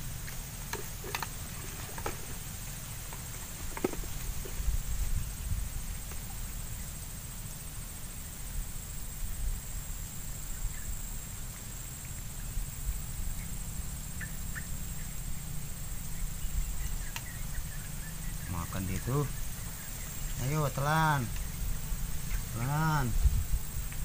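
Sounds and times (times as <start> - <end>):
high-pitched insect drone: 0.0 - 24.0
wind rumble on microphone: 1.5 - 6.9, 12.4 - 24.0.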